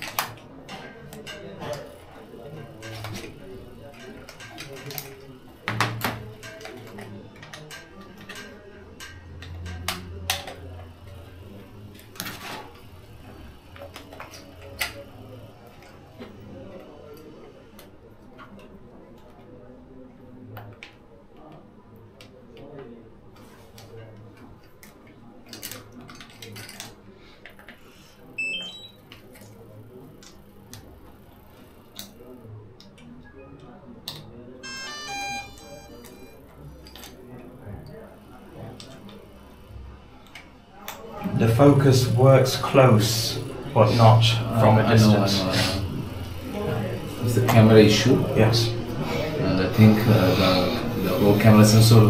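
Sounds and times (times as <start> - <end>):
cables and plastic clicking: 0.0 - 19.5
plastic parts clicking and knocking: 2.7 - 11.2, 23.7 - 27.8.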